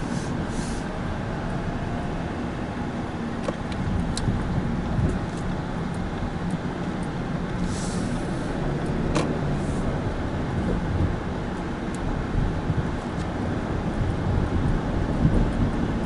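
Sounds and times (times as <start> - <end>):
car engine and tyre rumble: 0.0 - 16.0
brief hiss: 7.6 - 8.5.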